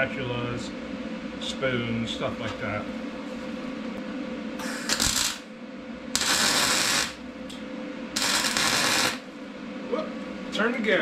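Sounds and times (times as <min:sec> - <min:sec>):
welder crackling: 0:04.6 - 0:05.5, 0:06.1 - 0:07.3, 0:08.2 - 0:09.3.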